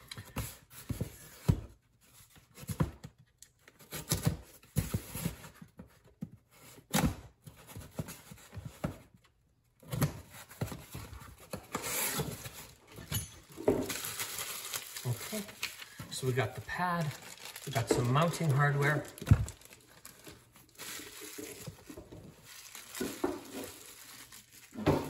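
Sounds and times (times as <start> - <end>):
packing tape tearing: 11.4 - 24.8.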